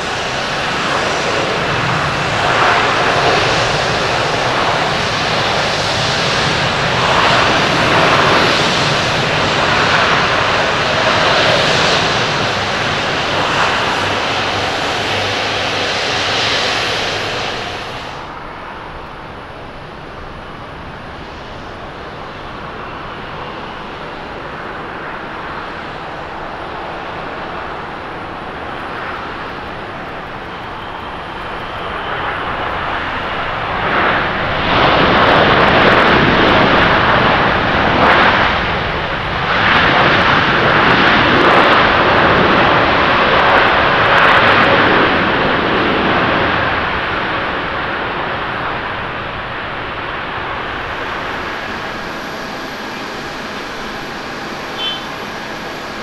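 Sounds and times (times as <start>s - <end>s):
jet engine hum: 0.0s - 56.0s
reverse thrust rush: 12.2s - 18.4s, 50.2s - 56.0s.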